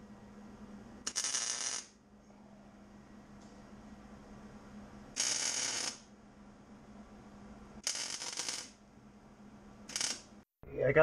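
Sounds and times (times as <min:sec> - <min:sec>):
welding arc crackling and hissing: 0:05.2 - 0:06.0, 0:07.8 - 0:08.7.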